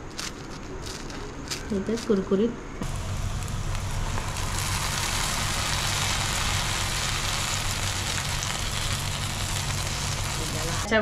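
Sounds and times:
fritters sizzling in hot oil: 2.8s - 10.9s.

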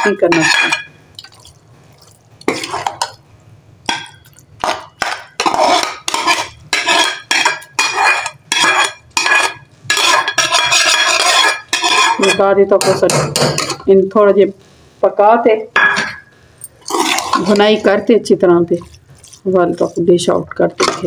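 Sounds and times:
metal ladle scraping a pot: 0.0s - 0.9s, 2.4s - 3.2s, 4.0s - 12.5s, 16.8s - 18.0s.

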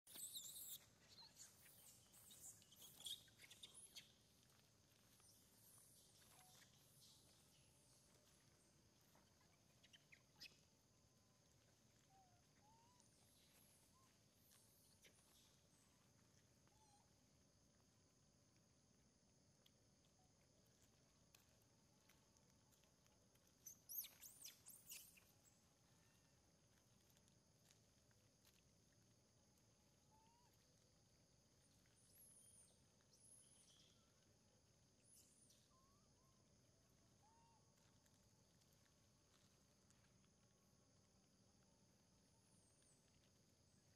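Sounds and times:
monkeys chirping and squeaking: 0.1s - 1.6s
faint short chirps: 0.1s - 4.2s.

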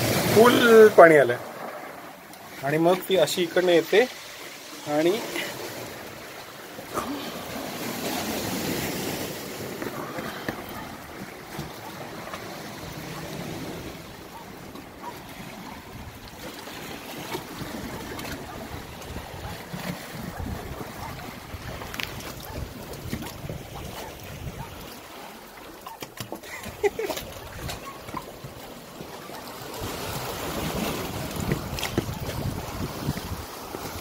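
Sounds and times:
sea waves washing against rocks: 0.0s - 34.0s
wind buffeting microphone: 17.6s - 24.8s, 29.8s - 34.0s.

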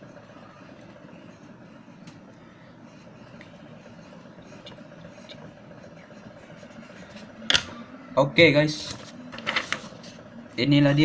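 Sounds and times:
low background hum: 0.0s - 11.0s
pencil scratching on paper: 2.8s - 7.4s.

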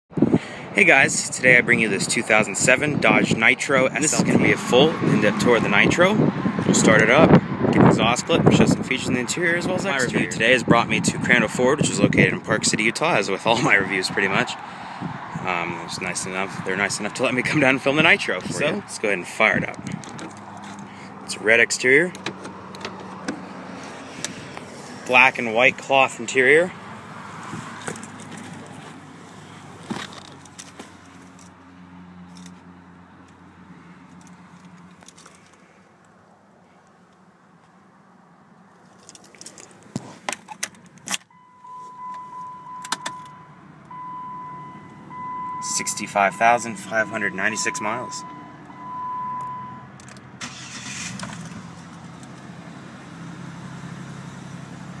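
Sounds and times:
car engine cranking: 22.0s - 25.2s, 42.7s - 55.0s
car engine idling: 50.0s - 55.0s.

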